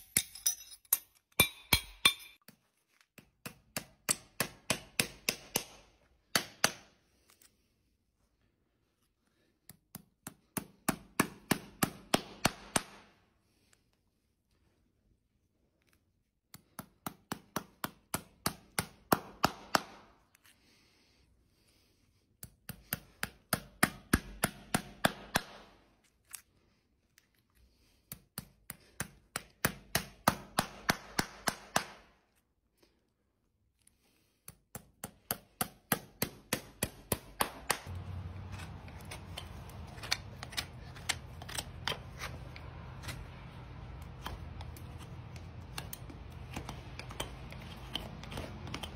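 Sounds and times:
hammer tapping nails: 3.2 - 6.9, 9.9 - 13.0, 16.6 - 20.1, 22.4 - 25.6, 28.1 - 32.0, 34.5 - 37.9.

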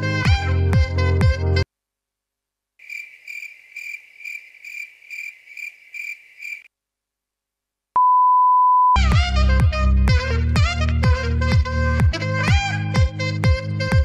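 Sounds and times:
cricket chirping: 2.8 - 6.7.

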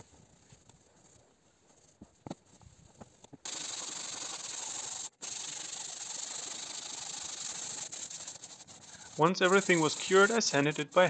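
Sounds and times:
hand sanding hiss: 3.4 - 11.0.

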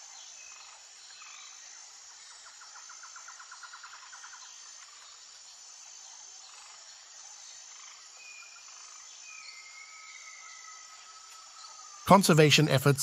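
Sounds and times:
rapid pulsed insect trill: 0.0 - 12.7
insects trilling: 0.0 - 13.0.

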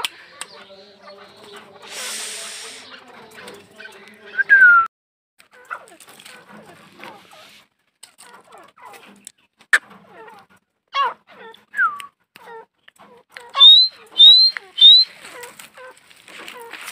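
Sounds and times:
francolin chirps and calls: 13.6 - 15.1
loud rising whistled notes: 13.6 - 15.1.

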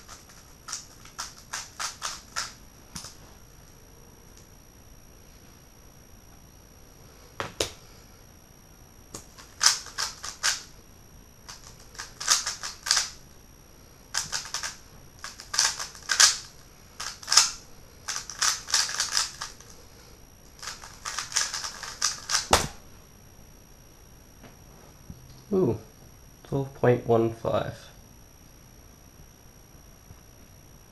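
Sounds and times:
puzzle cube clicking and clacking: 0.0 - 3.1, 9.2 - 10.7, 11.5 - 13.2, 14.2 - 19.6, 20.6 - 22.6.

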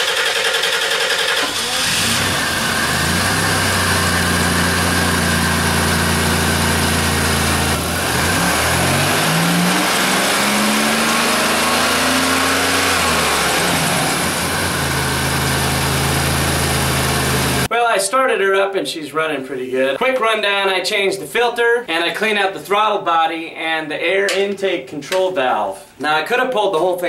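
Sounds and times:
car engine starting and idling: 0.0 - 17.7
engine revving: 0.0 - 17.7.

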